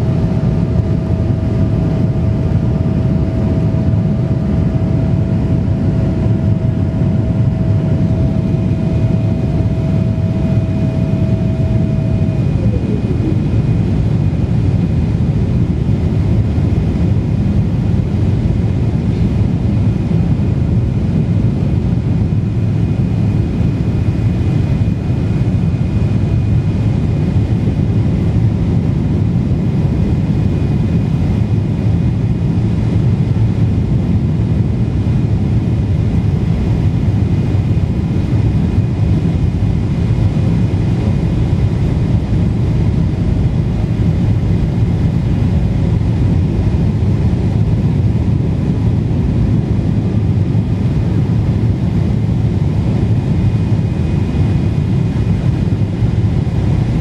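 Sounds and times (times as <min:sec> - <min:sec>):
faint high whine: 0:00.0 - 0:18.4
airplane cabin engine roar: 0:00.0 - 0:57.0
rushing airflow: 0:00.0 - 0:57.0.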